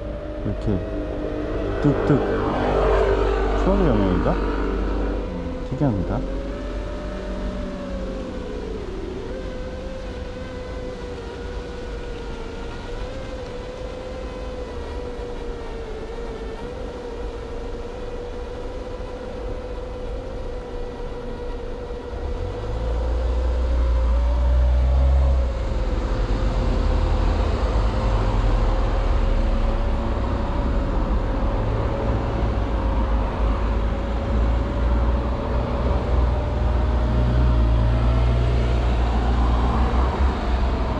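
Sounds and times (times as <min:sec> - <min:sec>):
loud low rumble: 0:00.0 - 0:06.3
quadcopter motors whining: 0:00.0 - 0:40.9.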